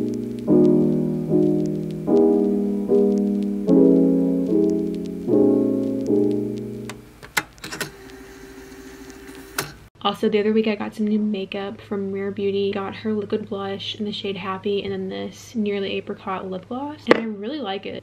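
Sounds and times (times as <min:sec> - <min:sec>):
soft piano chords: 0:00.0 - 0:07.2.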